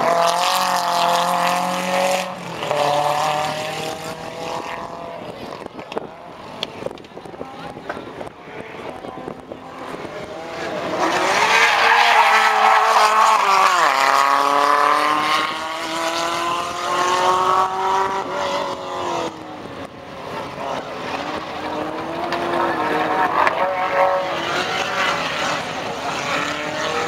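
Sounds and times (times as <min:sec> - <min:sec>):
race car engine passing: 0:09.0 - 0:27.0.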